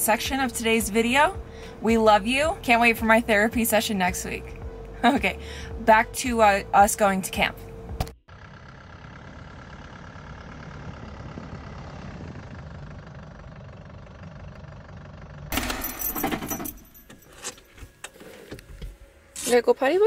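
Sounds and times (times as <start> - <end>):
truck engine running: 0.0 - 20.0
keys jangling in cab: 15.5 - 18.6.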